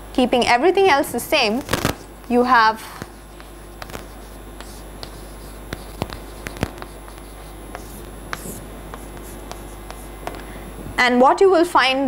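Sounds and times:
low room hum: 0.0s - 12.0s
chalk tapping and scratching: 1.5s - 10.6s.

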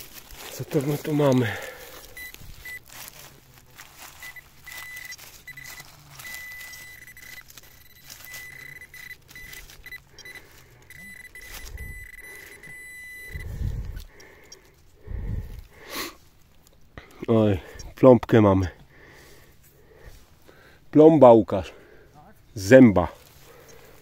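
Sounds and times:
digging in soil: 0.0s - 20.7s
metal detector beeps: 0.9s - 3.0s, 3.8s - 15.5s.

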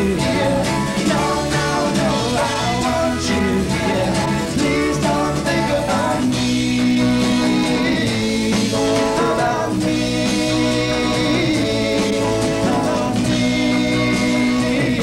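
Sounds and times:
man singing long held notes: 0.0s - 15.0s.

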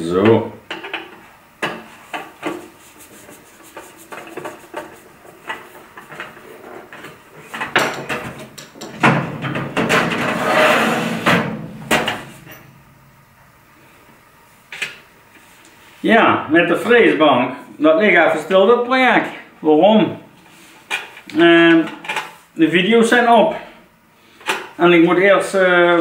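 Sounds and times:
sheet metal scraping: 8.9s - 12.9s.

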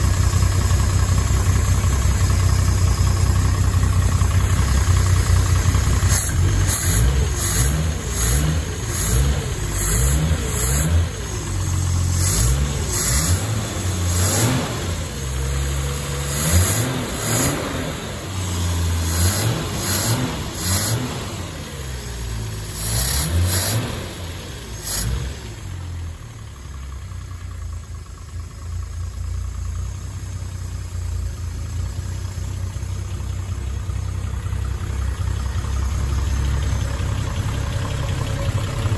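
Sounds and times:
car engine revving and idling: 0.0s - 38.9s.

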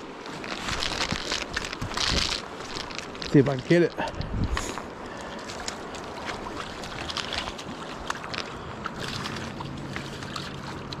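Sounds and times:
river water washing: 0.0s - 11.0s
wind on microphone: 4.1s - 4.9s.

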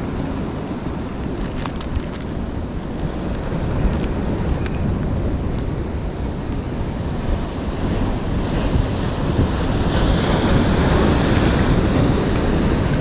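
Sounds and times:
sea waves breaking on rocks: 0.0s - 13.0s
wind rumbling on microphone: 0.0s - 13.0s.

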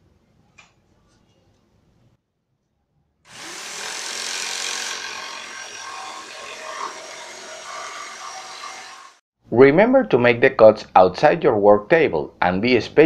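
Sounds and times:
jigsaw cutting plywood: 3.3s - 9.2s.

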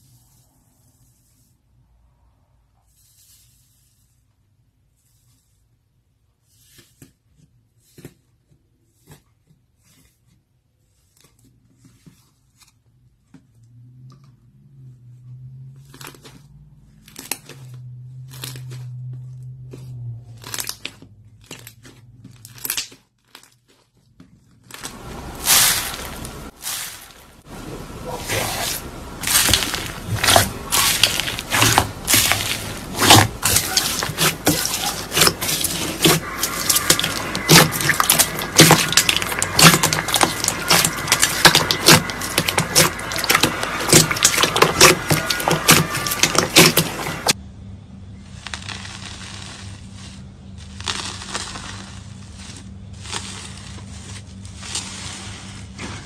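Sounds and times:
slime crunching and crackling: 15.8s - 47.4s, 48.3s - 56.0s.

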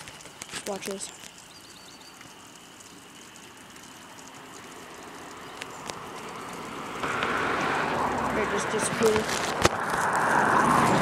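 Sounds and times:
faint high ticks: 0.0s - 7.4s
stream water flowing: 0.0s - 11.0s.

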